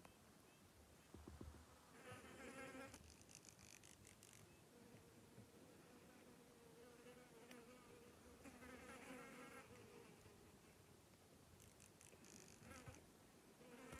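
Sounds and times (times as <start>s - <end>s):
flying insect buzzing: 11.6s - 13.0s.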